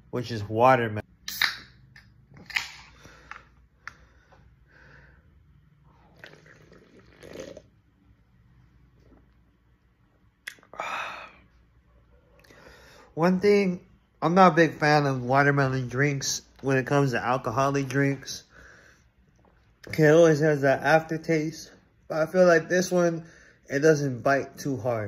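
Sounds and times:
person sipping and swallowing: 5.9 - 7.8.

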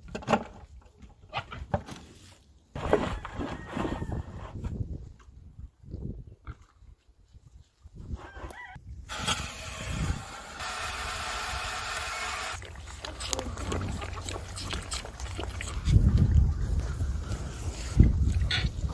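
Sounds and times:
water rushing from valve: 9.1 - 15.8.

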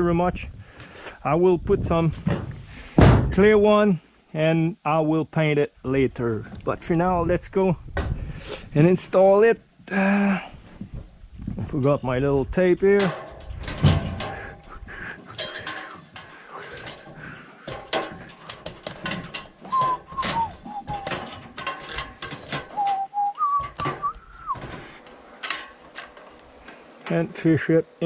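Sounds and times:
footsteps on metal ladder: 12.6 - 27.3
short whistled notes: 19.7 - 21.1, 22.8 - 24.6.

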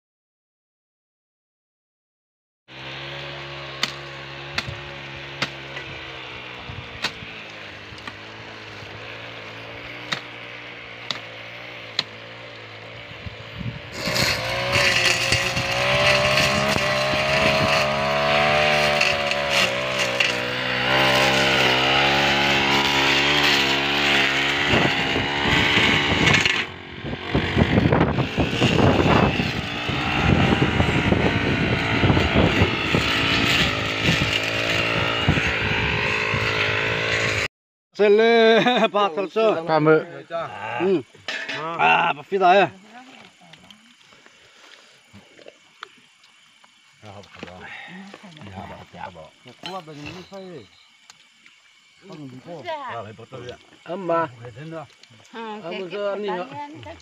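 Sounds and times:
blade cutting dry grass: 2.7 - 37.4
brush cutter engine running: 2.7 - 37.5, 52.0 - 57.0.

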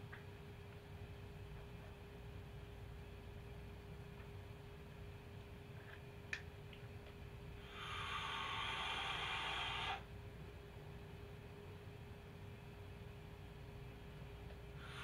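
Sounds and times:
air drawn through vape: 7.6 - 10.0
vape coil hissing: 7.7 - 10.0.

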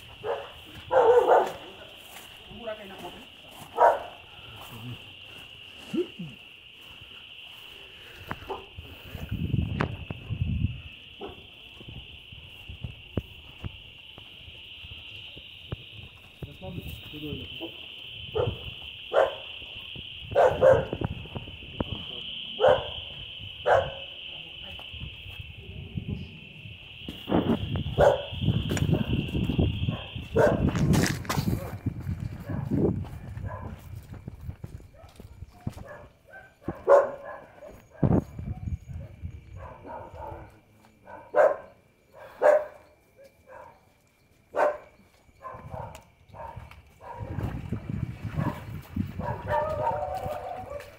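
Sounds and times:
dog barking: 0.2 - 1.8, 3.7 - 4.2, 8.5 - 8.7, 11.2 - 11.4, 17.6 - 19.5, 20.3 - 21.0, 22.6 - 23.0, 23.6 - 24.1, 28.0 - 29.2, 29.9 - 30.7, 32.4 - 32.7, 33.4 - 33.8, 35.8 - 43.8, 44.5 - 47.3, 48.4 - 48.6, 49.2 - 50.9
high-pitched drone: 4.6 - 31.2.

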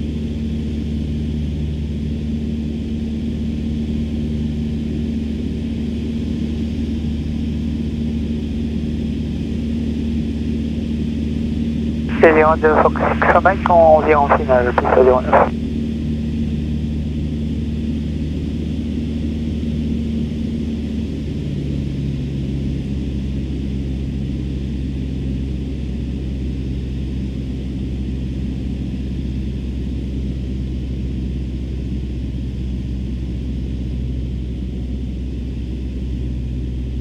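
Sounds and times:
airplane engine droning: 0.0 - 15.5.

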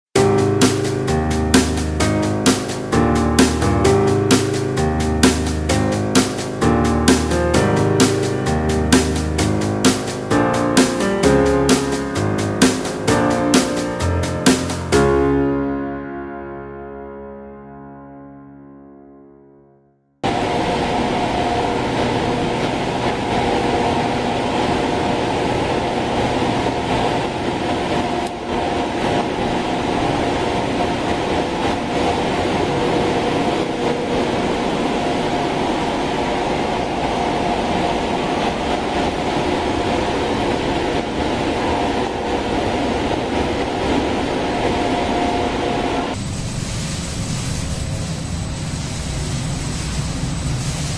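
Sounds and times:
machine droning with hum tones: 20.2 - 50.9.

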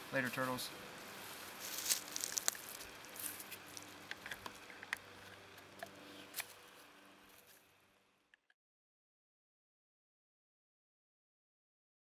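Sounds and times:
soft rustling: 1.1 - 3.9
light clicks and crackles: 1.7 - 6.6.

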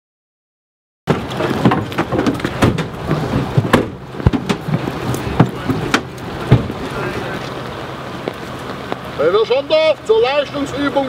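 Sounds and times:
knocks and thumps of doors and equipment: 1.1 - 6.8.

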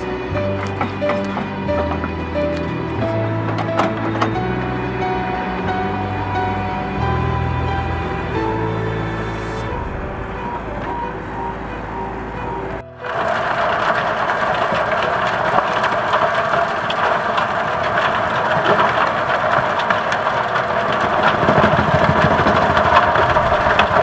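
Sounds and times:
soil ticks and crackles: 0.0 - 6.7, 12.4 - 24.0
music: 0.0 - 24.0
tractor diesel engine rumble: 0.0 - 24.0.

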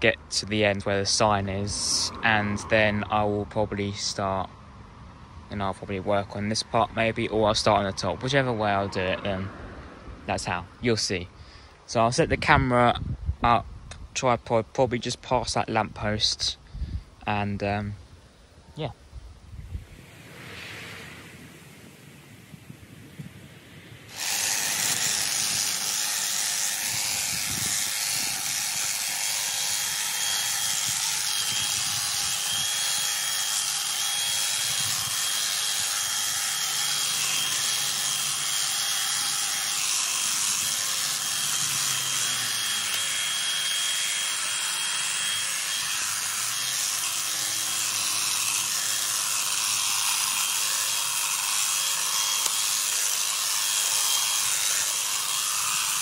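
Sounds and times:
hedge trimmer running: 24.1 - 56.0.

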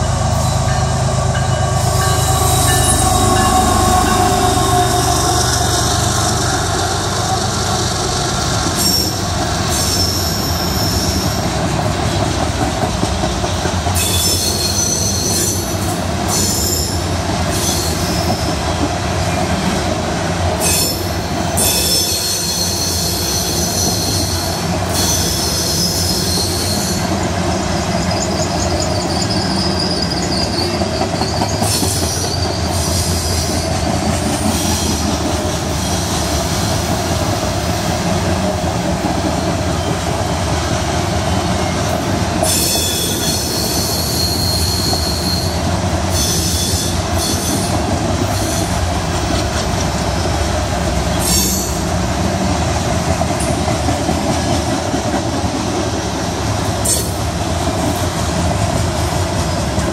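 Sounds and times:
freight train wheels rumbling on rail: 0.0 - 59.9
high-pitched wheel squeal: 1.5 - 6.6, 28.0 - 33.7, 42.4 - 47.7.

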